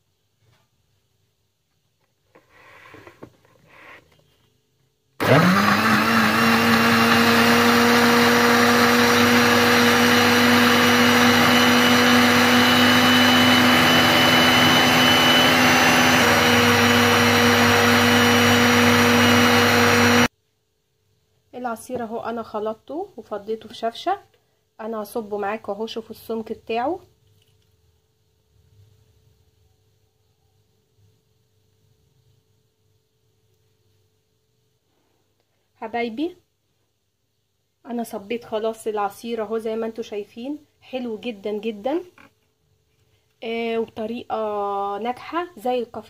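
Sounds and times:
blender motor whirring: 5.2s - 20.3s.

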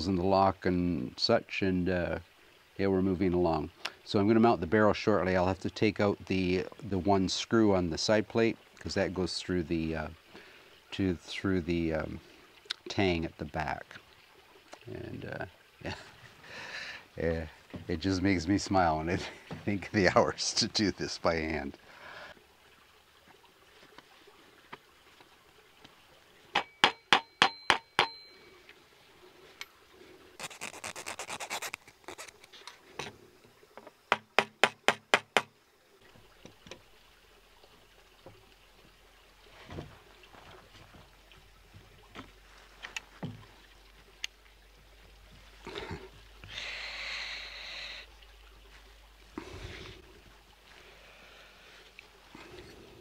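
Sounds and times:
metal scraping against wood: 30.4s - 33.1s.

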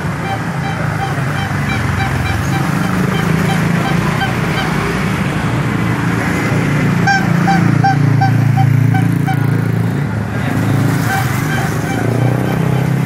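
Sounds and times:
motorcycle engine running: 0.0s - 5.4s.

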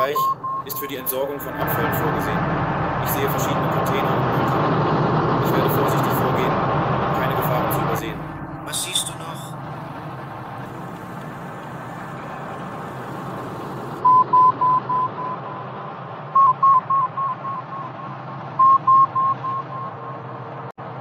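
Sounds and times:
short electronic beeps: 0.0s - 0.8s, 14.0s - 15.4s, 16.4s - 20.1s
cockpit low hum: 0.0s - 20.7s.

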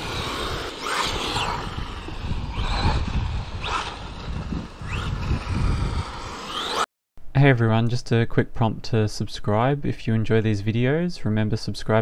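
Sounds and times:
rc car motor whining: 0.0s - 6.8s.

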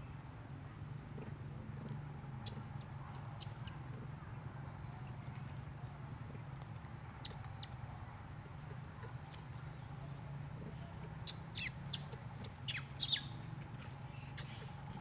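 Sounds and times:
animal squeaks: 9.2s - 10.2s, 11.2s - 13.3s.

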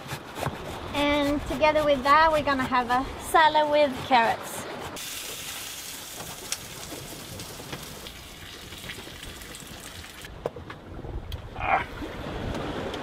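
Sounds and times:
fish sizzling in a frying pan: 5.0s - 9.3s.

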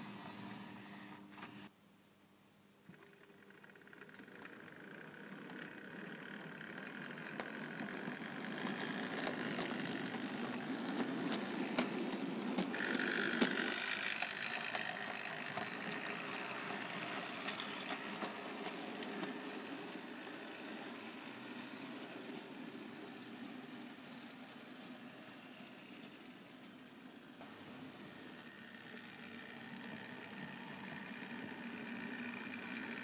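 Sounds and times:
sharp clicks of model train: 2.9s - 27.6s, 28.2s - 33.0s
model train motor and wheel rumble: 2.9s - 33.0s.

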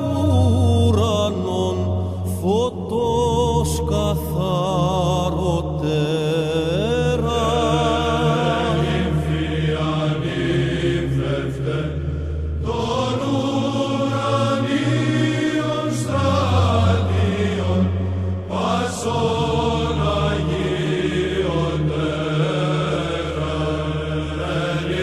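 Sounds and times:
person chanting ornamented lines: 0.0s - 12.0s
held low vocal drone: 0.0s - 25.0s.

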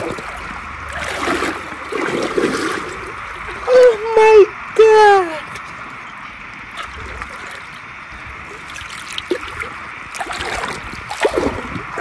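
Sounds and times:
splashes in water: 0.0s - 3.6s, 8.4s - 12.0s
river water over stones: 0.0s - 12.0s.

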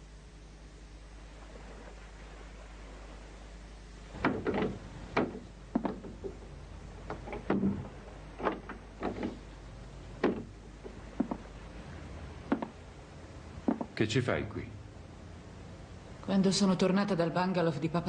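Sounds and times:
faint room hum: 0.0s - 18.0s
irregular knocks and clicks: 4.2s - 6.4s, 7.0s - 9.5s, 10.2s - 11.5s, 12.5s - 12.8s, 13.6s - 14.0s.

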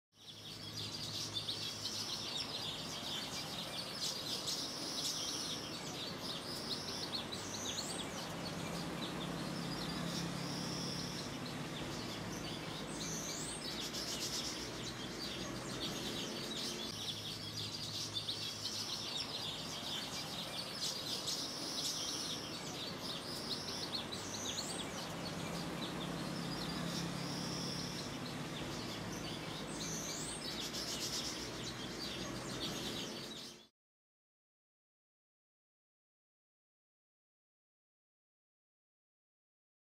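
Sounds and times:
birds chirping: 0.2s - 33.7s
rising whistled bird calls: 0.3s - 32.0s.

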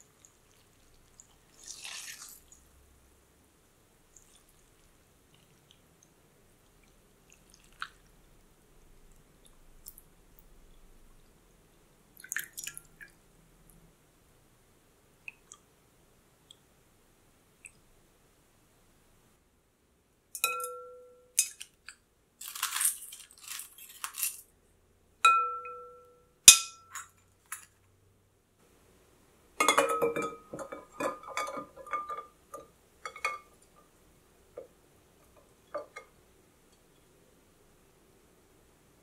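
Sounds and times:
ice clinking against glass bowl: 22.4s - 24.4s.

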